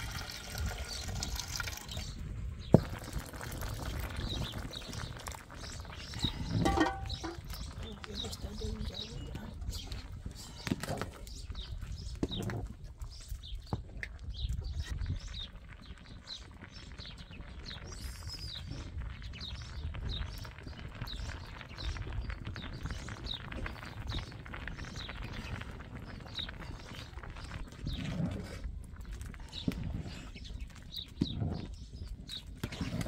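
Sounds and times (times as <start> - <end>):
small bird chirping: 4.2 - 10.0.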